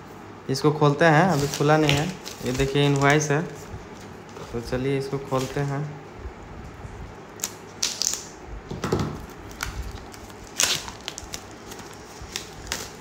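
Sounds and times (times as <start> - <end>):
packaging rustling and scraping: 1.2 - 5.9, 9.2 - 13.0
sharp packaging crinkle: 1.2 - 5.9, 7.3 - 8.4, 9.2 - 13.0.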